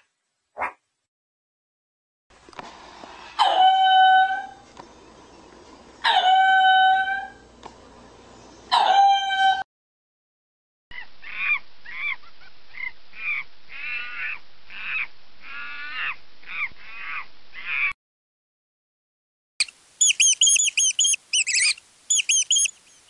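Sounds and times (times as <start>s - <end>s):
meerkat calling: 11.2s - 18.0s, 20.0s - 22.8s
monkey short arching calls: 19.6s - 23.0s.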